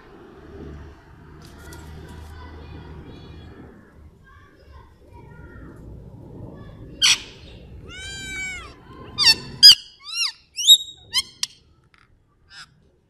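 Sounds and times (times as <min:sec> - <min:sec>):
parakeet screeching: 0:07.0 - 0:11.5.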